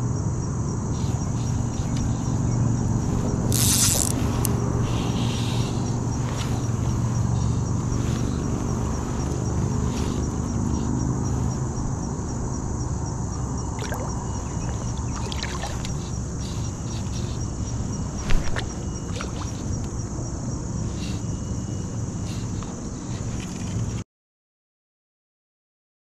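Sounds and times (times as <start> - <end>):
flowing river water: 13.6 - 19.8.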